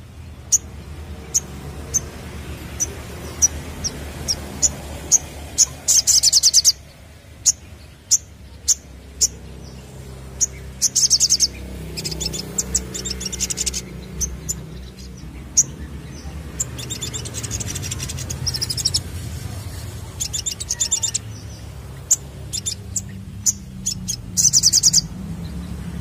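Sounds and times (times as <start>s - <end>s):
bird chattering trills: 0.0s - 25.2s
bird chips: 10.4s - 25.2s.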